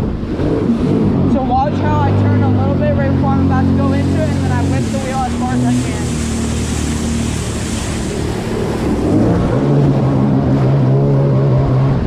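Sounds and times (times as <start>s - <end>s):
personal watercraft engine revving: 0.0s - 12.0s
wind and water spray: 0.0s - 12.0s.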